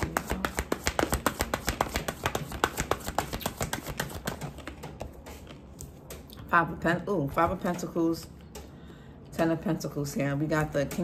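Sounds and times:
cards being shuffled: 0:00.0 - 0:06.1.

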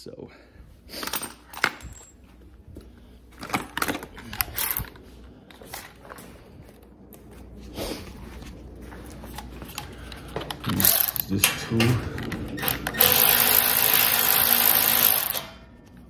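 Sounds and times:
metal tools clinking and rattling: 0:00.9 - 0:02.4, 0:03.4 - 0:05.0, 0:10.5 - 0:13.6.

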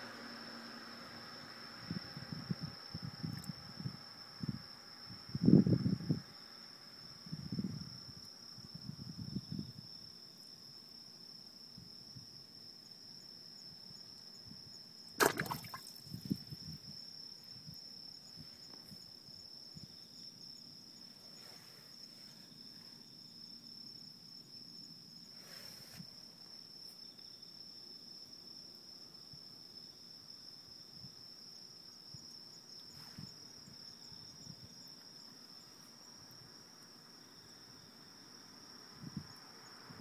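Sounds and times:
crickets trilling: 0:00.0 - 0:40.0
sharp knock: 0:15.2 - 0:15.8.

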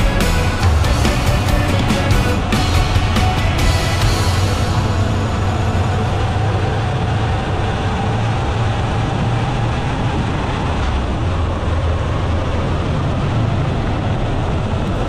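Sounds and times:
motorcycle engine running: 0:00.0 - 0:08.5
wind and road noise: 0:00.0 - 0:15.0.

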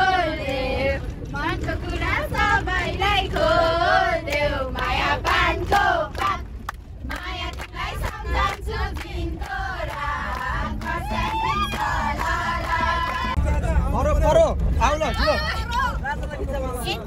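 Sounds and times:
people singing folk song: 0:00.0 - 0:13.4
bus rumble: 0:00.0 - 0:17.0.

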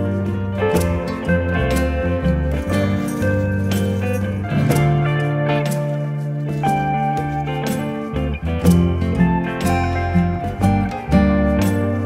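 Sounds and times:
strummed guitar music: 0:00.0 - 0:12.0.

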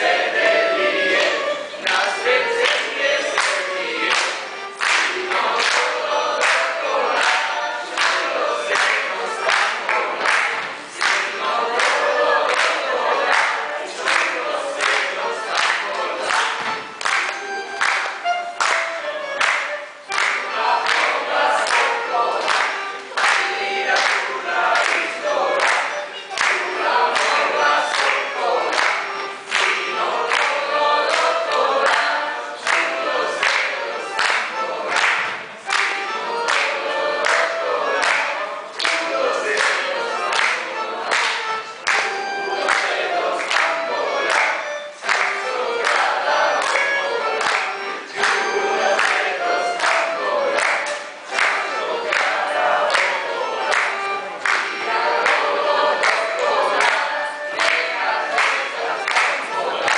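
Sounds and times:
choir singing in unison: 0:00.0 - 0:17.2, 0:20.1 - 0:59.9.

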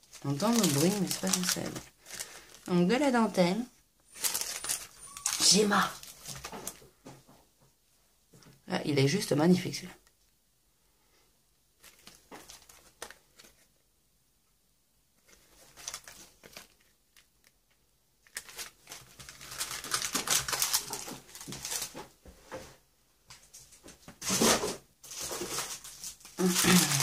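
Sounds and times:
plastic packaging crinkling: 0:00.0 - 0:02.9, 0:04.1 - 0:06.8, 0:11.8 - 0:13.7, 0:15.2 - 0:17.6, 0:18.2 - 0:22.1, 0:24.3 - 0:27.0.

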